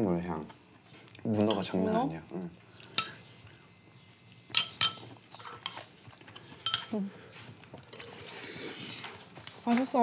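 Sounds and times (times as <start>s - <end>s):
metal spoon clinking on ceramic bowl: 1.5s - 1.7s, 3.0s - 3.2s, 4.5s - 5.9s, 6.6s - 7.0s.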